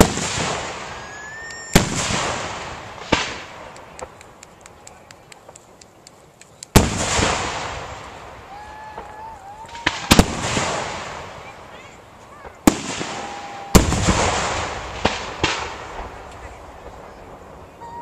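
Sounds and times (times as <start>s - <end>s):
firework shells bursting: 0.0s - 11.2s
small crackling pops: 3.1s - 6.9s.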